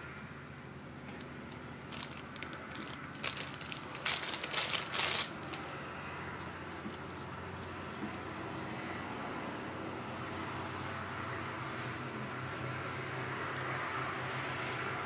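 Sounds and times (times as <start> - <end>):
plastic bag crinkling: 1.5 - 5.7.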